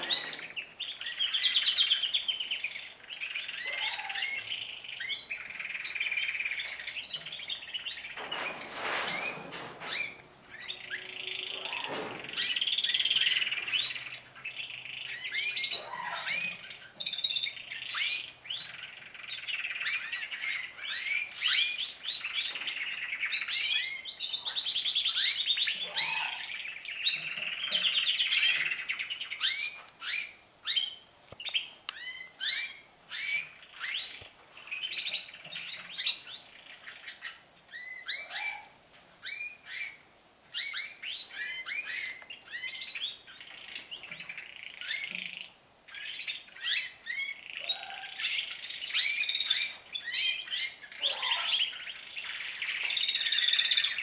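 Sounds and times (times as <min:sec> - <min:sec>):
canaries singing trills: 0:00.0 - 0:54.0.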